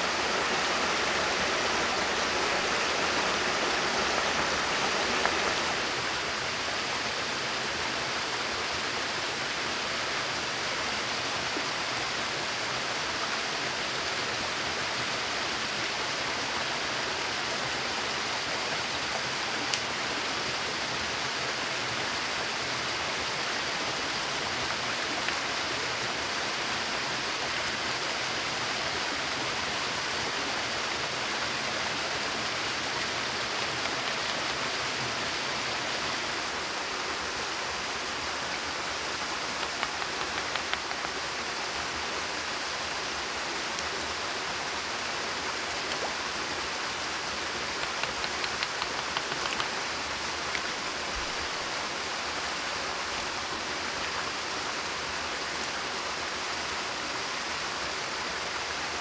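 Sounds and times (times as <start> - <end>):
stream running over rocks: 0.0 - 59.0
waterfall rushing: 0.0 - 59.0.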